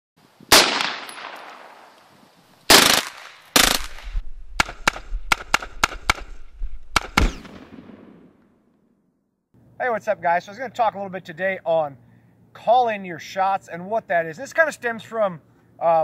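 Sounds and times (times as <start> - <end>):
rifle gunshots with echo: 0.5 - 1.8, 2.7 - 8.5.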